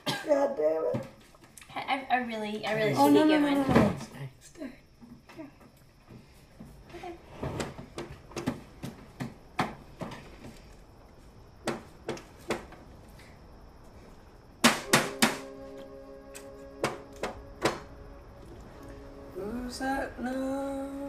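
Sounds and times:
loud strikes: 14.6 - 18.2
music with sustained notes: 14.9 - 21.0.

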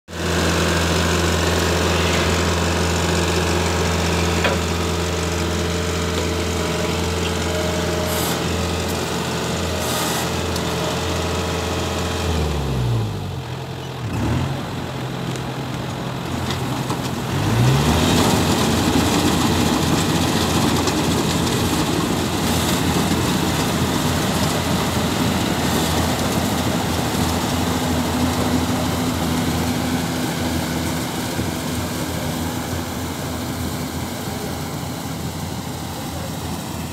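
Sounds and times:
combine harvester diesel engine: 0.1 - 36.9.

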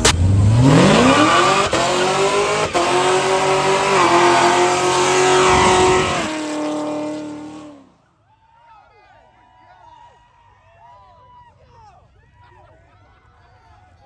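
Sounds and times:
car engine revving: 0.0 - 7.9.

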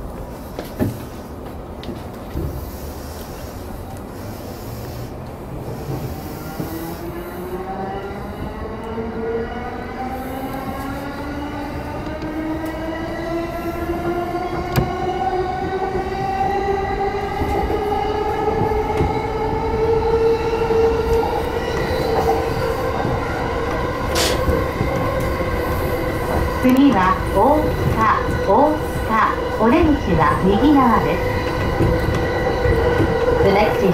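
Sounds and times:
wheels rumbling on rail: 0.0 - 33.9.

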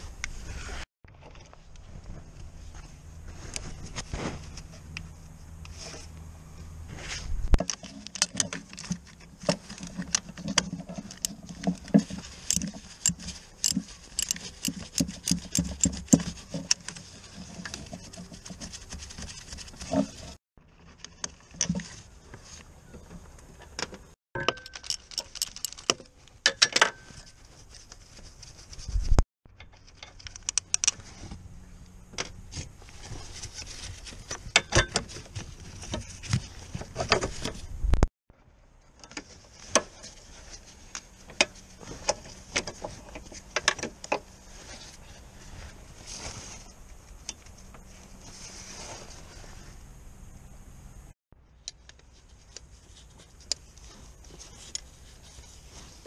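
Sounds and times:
metallic clicks and clinks: 12.5 - 16.0, 24.4 - 27.0.

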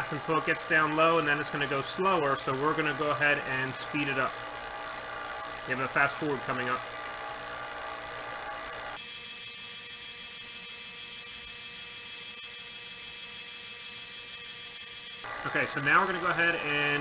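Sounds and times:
vacuum pump running: 0.0 - 17.0.

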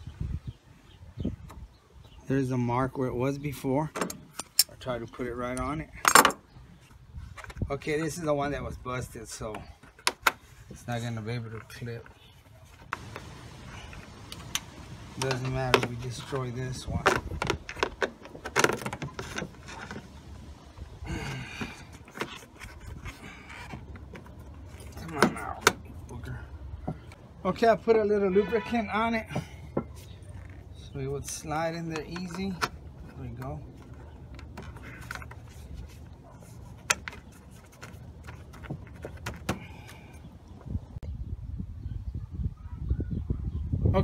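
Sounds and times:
rubber hose rubbing and scraping: 9.4 - 26.2, 28.4 - 40.9.

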